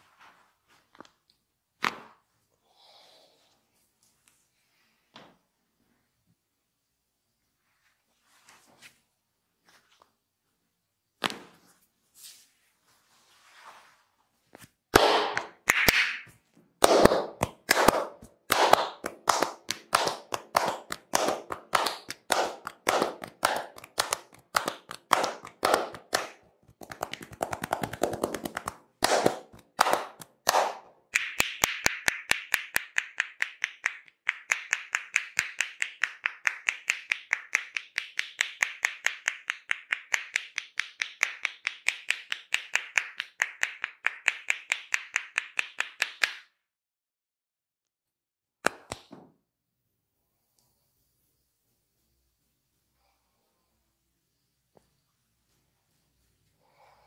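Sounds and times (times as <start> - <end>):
palms clapping on head: 15.0 - 46.5
fast clicking hand taps: 16.9 - 46.3.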